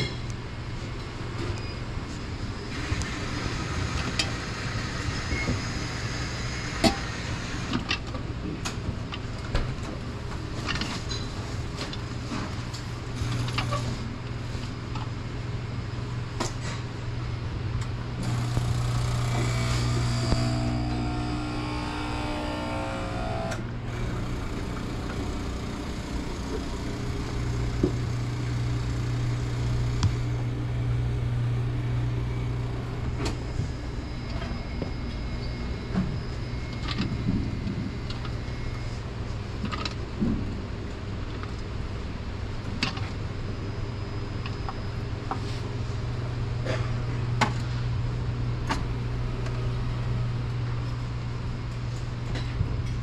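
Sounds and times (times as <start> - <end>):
higher drone: 18.2 - 36.7
low cabin hum: 18.2 - 38.8.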